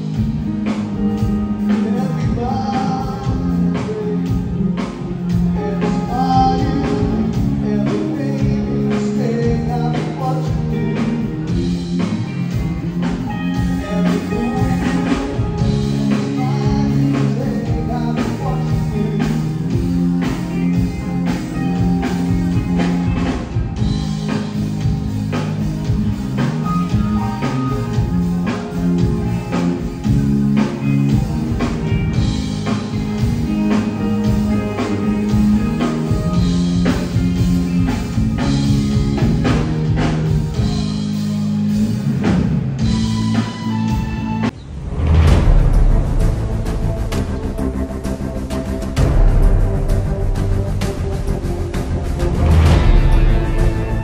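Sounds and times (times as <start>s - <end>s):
live band playing: 0.0s - 54.0s
steady drum beat: 0.0s - 54.0s
person singing: 1.5s - 12.1s, 13.3s - 20.4s.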